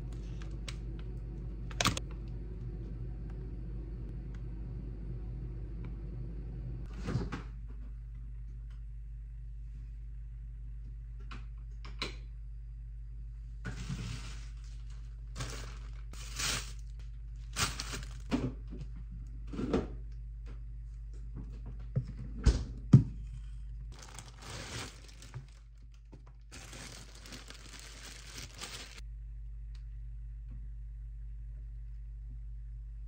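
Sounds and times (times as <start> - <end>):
steady low hum: 0.0 - 33.0
plastic packaging crinkling: 14.2 - 18.3, 23.9 - 29.0.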